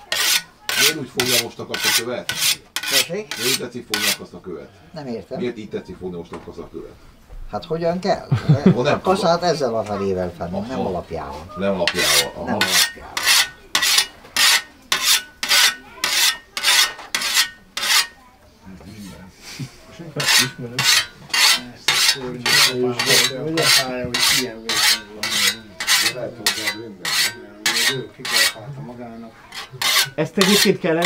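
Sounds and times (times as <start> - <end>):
whetstone scraping scythe blade: 0.1 - 4.2, 11.9 - 18.2, 20.2 - 28.6, 29.5 - 30.8.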